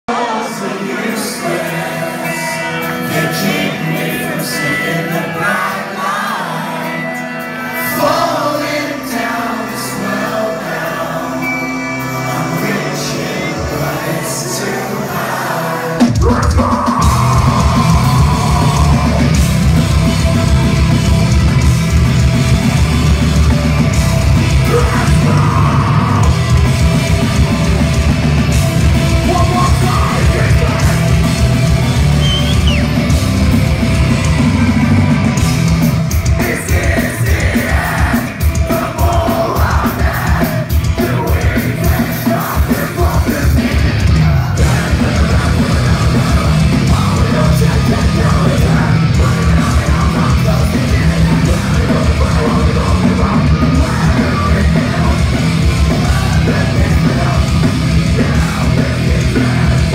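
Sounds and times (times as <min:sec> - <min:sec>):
live metal band playing: 0:00.1 - 0:59.9
vocalist yelling and screaming: 0:12.2 - 0:19.6, 0:24.6 - 0:26.5, 0:29.2 - 0:31.2.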